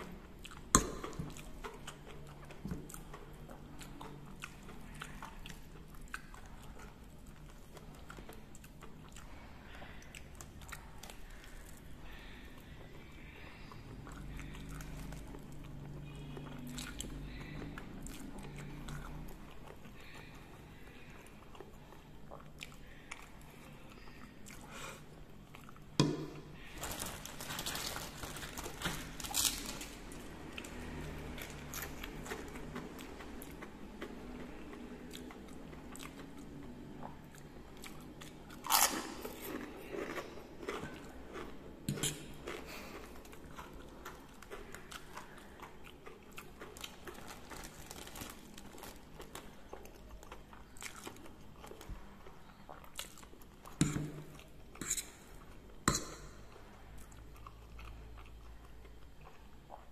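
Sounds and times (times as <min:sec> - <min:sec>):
person chewing and crunching: 0:00.0 - 0:59.9.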